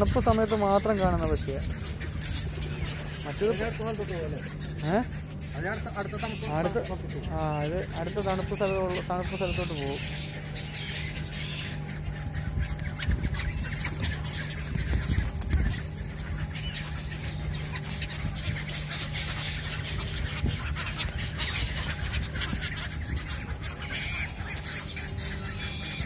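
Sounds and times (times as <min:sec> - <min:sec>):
gulls and pigeons calling: 0:00.0 - 0:26.0
steady low hum: 0:00.0 - 0:26.0
wings fluttering: 0:00.0 - 0:26.0.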